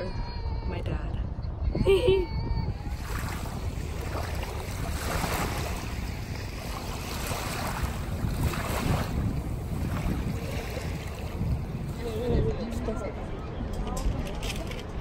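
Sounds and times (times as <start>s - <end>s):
wind buffeting microphone: 0.0s - 15.0s
small waves lapping on beach: 2.9s - 12.8s.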